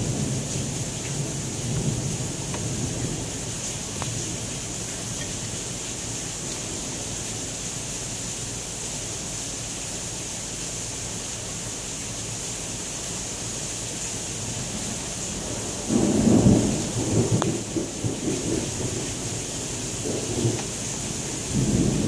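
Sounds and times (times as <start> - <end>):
thunder rumbling: 0.0 - 5.8, 15.5 - 22.0
heavy rain pouring: 0.0 - 22.0.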